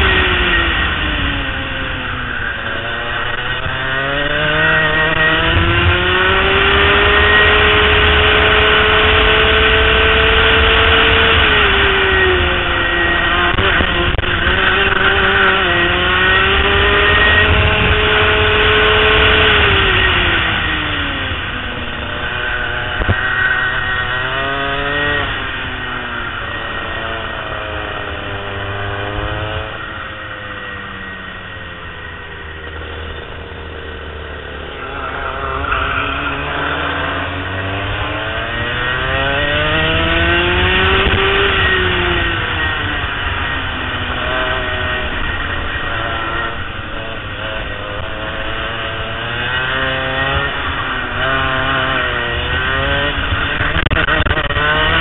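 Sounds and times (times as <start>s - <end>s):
go-kart engine revving: 0.0s - 55.0s.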